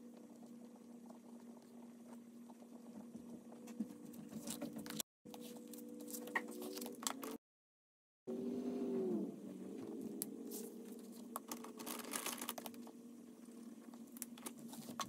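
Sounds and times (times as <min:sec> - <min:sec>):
pages rustling and turning: 0:04.2 - 0:07.4, 0:10.4 - 0:12.9
faint steady hum: 0:08.3 - 0:15.0.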